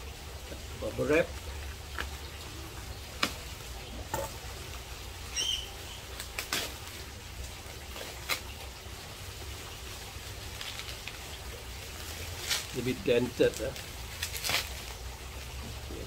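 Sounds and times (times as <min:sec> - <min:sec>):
bubble wrap crackles: 0:06.1 - 0:07.1, 0:10.4 - 0:15.5
bubble wrap rustling and crinkling: 0:06.1 - 0:08.7, 0:10.3 - 0:15.7.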